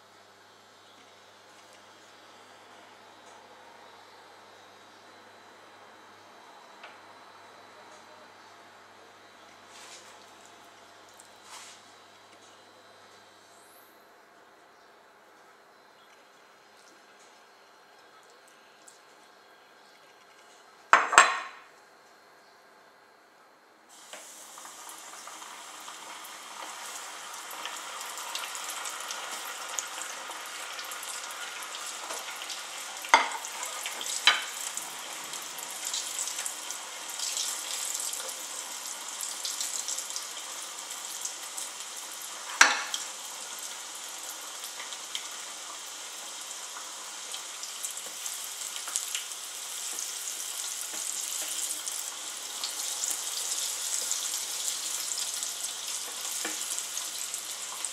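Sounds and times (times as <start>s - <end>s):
fish deep-frying in oil: 23.9s - 57.9s.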